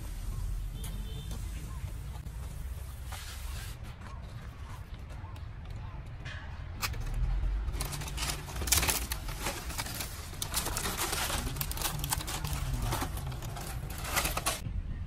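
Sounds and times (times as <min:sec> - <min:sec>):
dry leaves crackling and rustling: 0:07.7 - 0:14.6.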